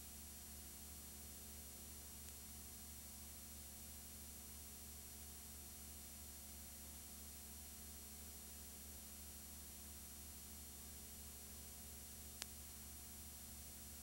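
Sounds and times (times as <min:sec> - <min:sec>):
low hum and hiss: 0:00.0 - 0:14.0.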